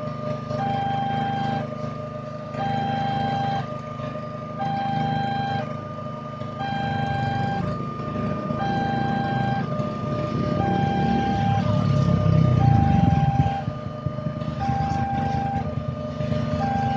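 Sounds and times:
low engine rumble: 0.0 - 16.9
two-tone crossing alarm chime: 0.5 - 1.7, 2.6 - 3.7, 4.6 - 5.8, 6.4 - 14.0, 14.6 - 15.8, 16.5 - 16.9.

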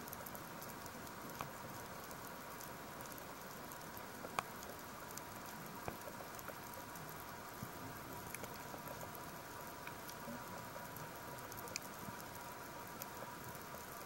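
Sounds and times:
faint steady tone: 0.0 - 14.0
sharp underwater clicks: 8.2 - 10.2, 10.8 - 12.3.

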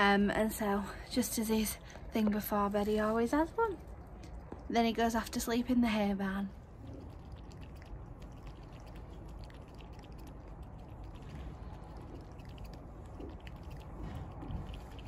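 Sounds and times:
low rumble: 0.0 - 15.0
cat lapping from steel bowl: 6.8 - 15.0.

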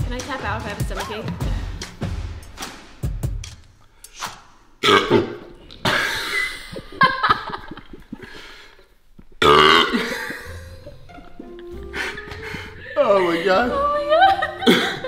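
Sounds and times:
person burping: 4.8 - 8.3, 9.4 - 11.4.

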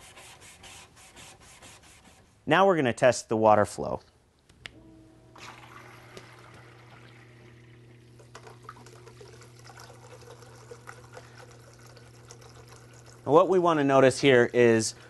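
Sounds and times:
pump humming: 4.8 - 15.0
water trickling over stone: 8.3 - 13.3.

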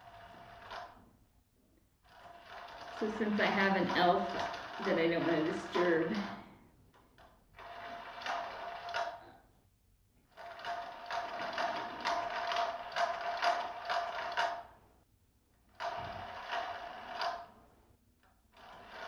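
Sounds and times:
toy motor whirring and clicking: 7.2 - 9.3, 10.3 - 14.7, 15.8 - 17.5, 18.2 - 19.0.

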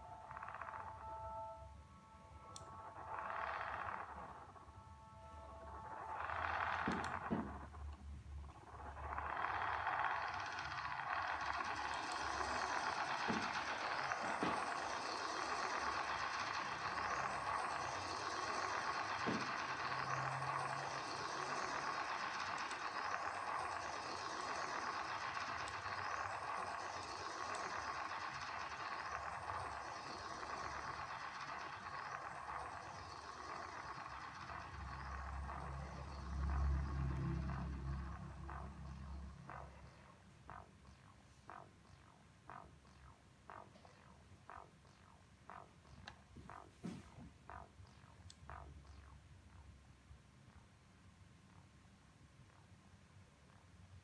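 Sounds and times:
low rumble: 0.1 - 50.6
electronic rushing noise: 8.5 - 49.2.

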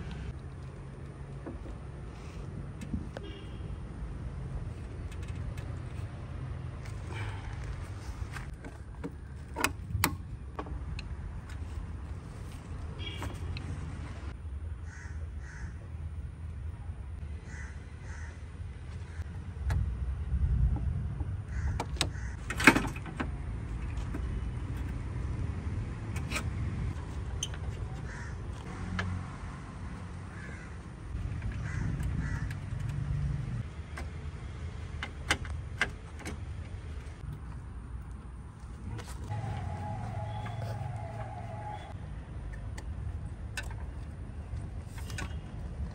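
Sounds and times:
crows cawing: 14.8 - 15.8, 17.4 - 18.4, 21.5 - 22.4, 28.0 - 29.0, 30.3 - 30.9, 31.6 - 32.6
metallic clicks and knocks: 31.2 - 37.4.

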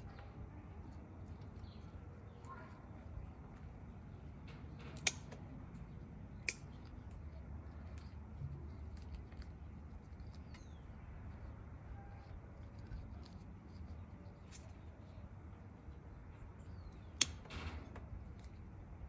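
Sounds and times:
low background hum: 0.0 - 19.0
rustling of cuttings: 0.0 - 19.0
pruning shears snipping stems: 4.7 - 7.0, 17.1 - 17.4.

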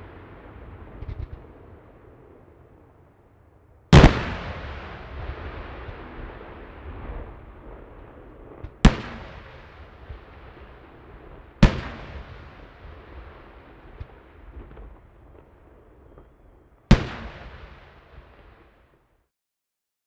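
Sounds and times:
firework bangs with echo: 0.0 - 2.8, 3.9 - 16.3, 16.9 - 18.8
small firework pop: 0.9 - 1.5.

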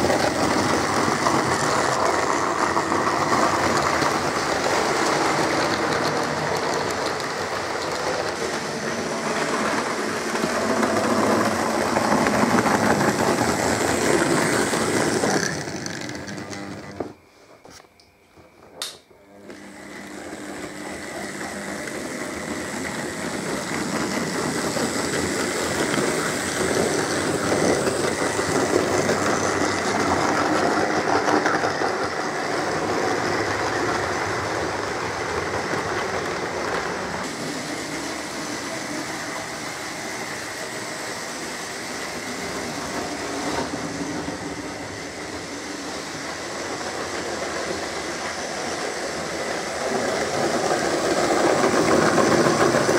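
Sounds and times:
wheels rattling over rails: 0.0 - 17.2, 21.1 - 52.9
model train motor whirring: 20.9 - 52.9.

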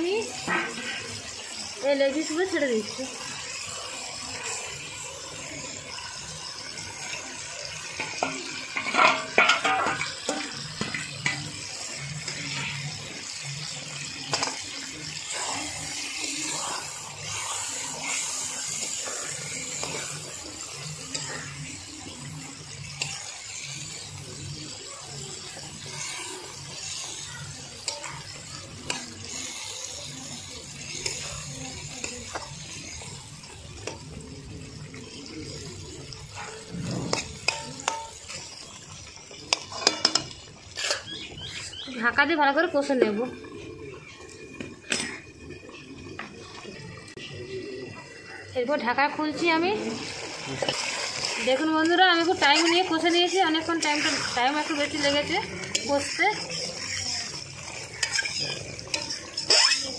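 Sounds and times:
chicken sizzling in oil: 0.0 - 59.9
spatula scraping a pan: 0.4 - 1.2, 8.0 - 24.3, 24.9 - 33.2, 36.2 - 41.9, 49.8 - 59.9.

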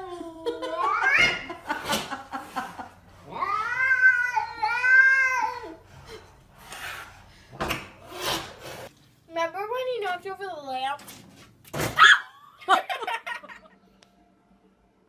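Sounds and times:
cat growling and yowling: 3.2 - 5.8.

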